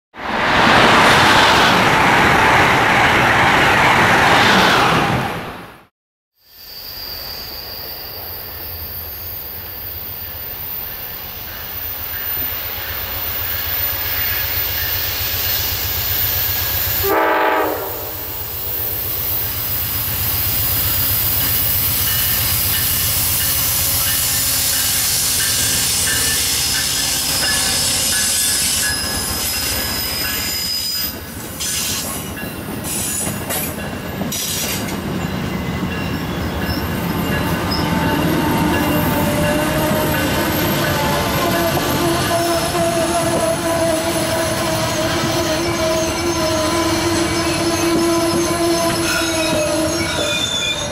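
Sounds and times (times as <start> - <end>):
train wheels squealing: 6.4 - 17.1, 18.3 - 50.9
train horn blast: 17.0 - 18.5, 37.8 - 50.2.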